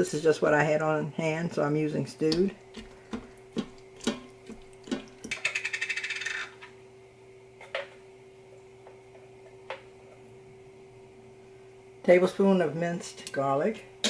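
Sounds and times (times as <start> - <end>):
faint steady hum: 0.0 - 14.0
spatula knocking and scraping pot: 2.4 - 6.4.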